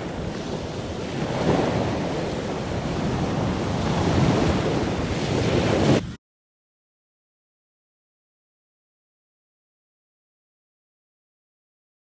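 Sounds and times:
sea surf breaking on beach: 0.0 - 6.2
wind buffeting microphone: 0.0 - 6.2.

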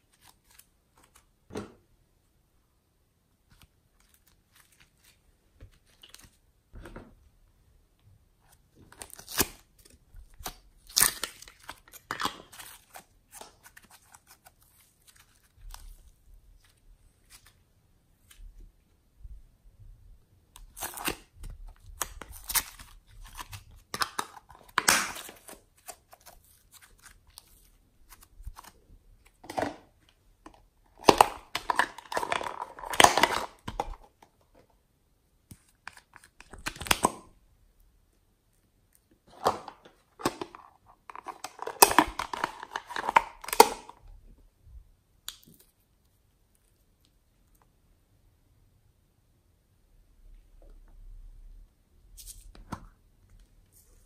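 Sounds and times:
plastic containers being handled: 28.1 - 34.7, 39.2 - 44.0.

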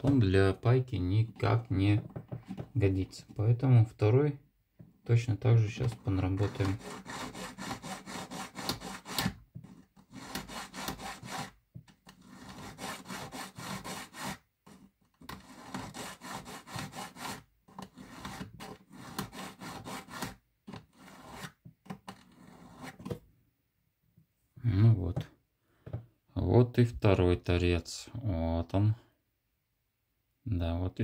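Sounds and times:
needle file rasping on metal: 5.7 - 23.2.

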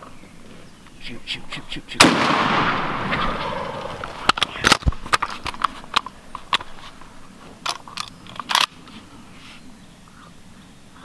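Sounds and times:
shotgun shot echoing: 2.0 - 4.8
sharp clicks and knocks: 4.0 - 8.7.

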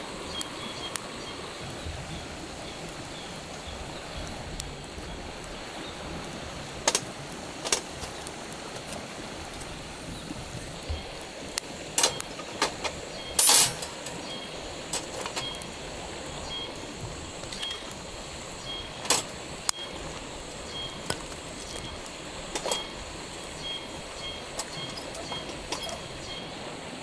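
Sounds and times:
steady hiss: 0.0 - 27.0
twig fire crackling: 0.0 - 27.0
metal clinks: 13.4 - 14.2.

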